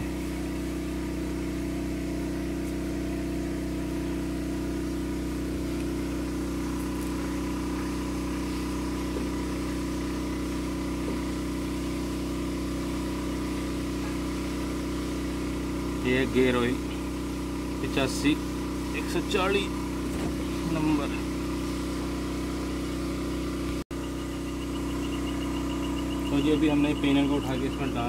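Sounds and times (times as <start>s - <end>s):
engine humming steadily: 0.0s - 28.0s.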